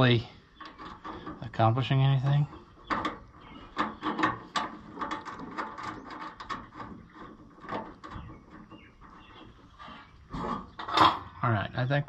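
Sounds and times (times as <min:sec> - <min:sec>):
metal terminals clicking and rattling: 0:02.2 - 0:09.6.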